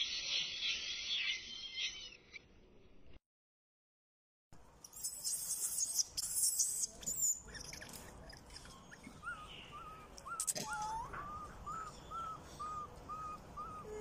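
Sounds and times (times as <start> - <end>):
high dense chirping: 0.0 - 2.5.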